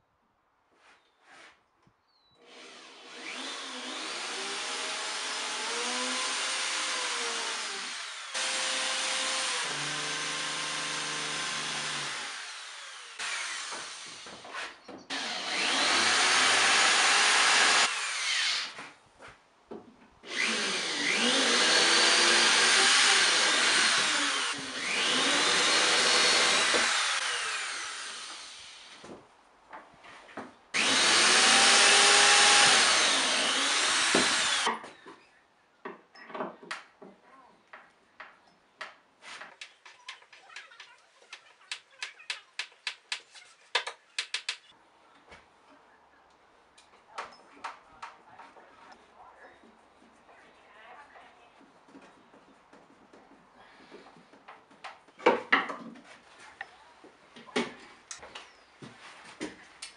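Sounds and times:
electric drill cutting into plywood: 0:02.4 - 0:14.4, 0:15.1 - 0:18.8, 0:20.2 - 0:29.0, 0:30.8 - 0:34.7.

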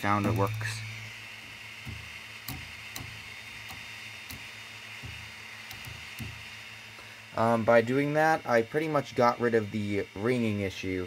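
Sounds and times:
drive belt plucked twang: 0:00.0 - 0:01.2, 0:01.8 - 0:04.4.

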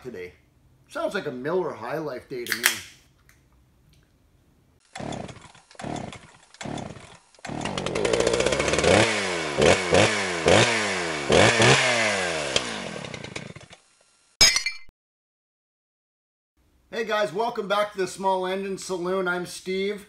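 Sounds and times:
small gas engine revving: 0:04.8 - 0:13.8.

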